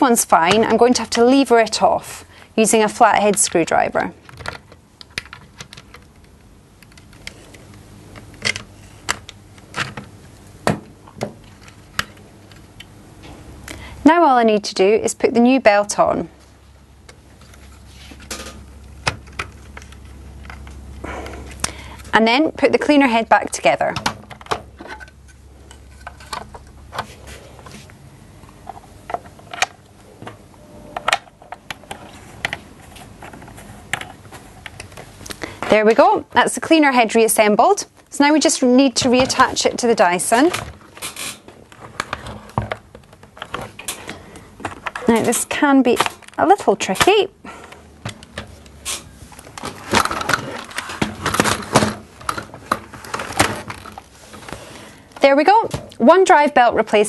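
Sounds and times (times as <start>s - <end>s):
plastic parts clicking and knocking: 4.2s - 12.9s, 23.9s - 26.7s, 48.0s - 54.1s.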